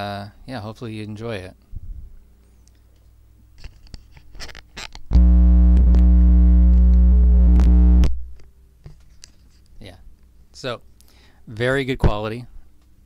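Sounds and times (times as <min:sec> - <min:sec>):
loud mains hum buzzing: 0:05.1 - 0:11.5.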